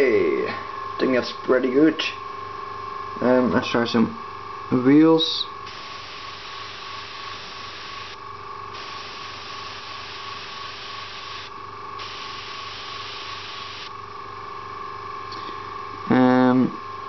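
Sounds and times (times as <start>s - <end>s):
steady hum: 0.0s - 17.0s
airbrush air hiss: 5.6s - 13.9s.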